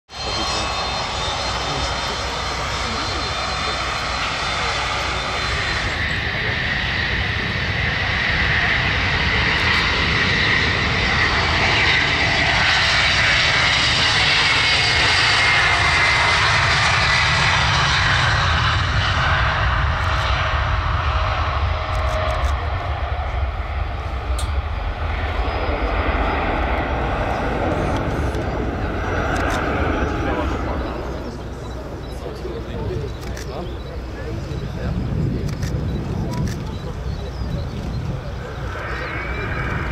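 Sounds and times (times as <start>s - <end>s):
jet engines roaring at takeoff: 0.1s - 39.9s.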